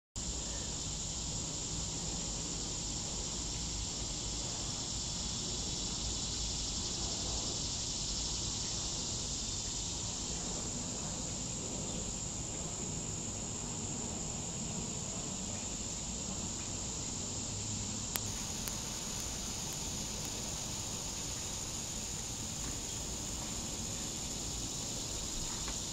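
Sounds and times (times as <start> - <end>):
high-pitched insect chorus: 0.2 - 25.9
faint click: 18.1 - 20.4.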